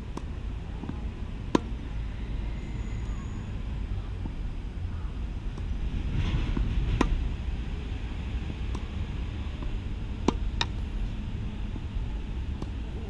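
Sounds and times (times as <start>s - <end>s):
wind rumble on microphone: 0.0s - 13.0s
tennis ball bouncing on court: 0.1s - 1.8s, 6.6s - 7.2s, 8.7s - 8.9s, 9.6s - 10.8s, 12.5s - 12.8s
tennis serve strike: 0.1s - 1.8s, 6.6s - 7.2s, 8.7s - 8.9s, 9.6s - 10.8s.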